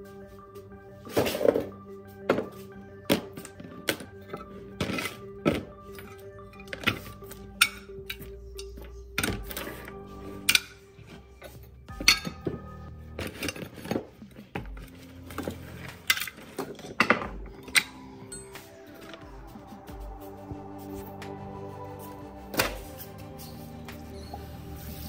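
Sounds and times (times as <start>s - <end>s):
background music: 0.0s - 25.0s
metal parts clanking: 13.2s - 18.0s.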